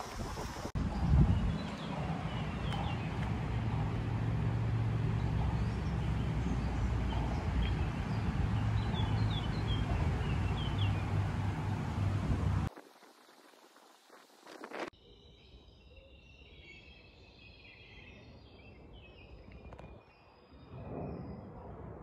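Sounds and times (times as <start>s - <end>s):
jet plane rumbling overhead: 0.0s - 12.7s
small birds chirping: 0.7s - 12.2s.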